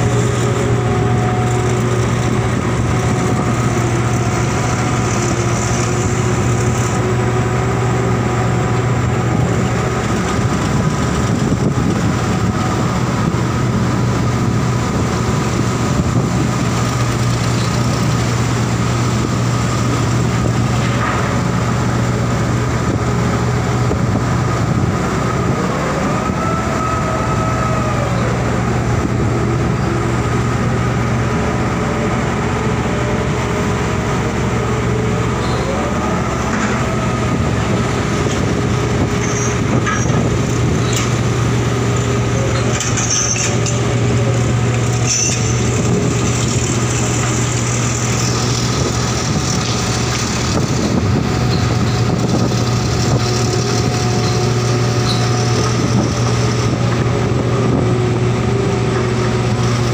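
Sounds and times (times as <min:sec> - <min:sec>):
crane engine humming: 0:00.0 - 0:59.9
winches whining: 0:50.8 - 0:58.2.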